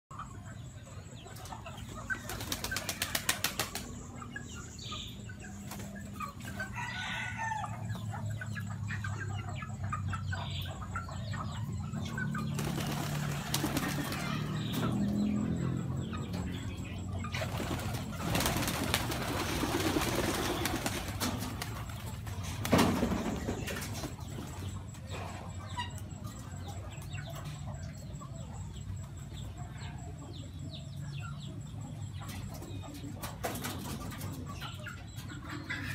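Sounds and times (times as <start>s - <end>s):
pigeon wingbeats: 2.2s - 3.9s, 12.6s - 14.4s, 17.4s - 24.2s.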